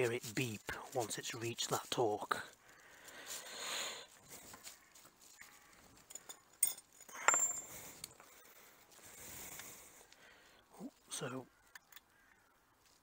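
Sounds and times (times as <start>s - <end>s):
metal tools clinking: 6.0s - 8.4s.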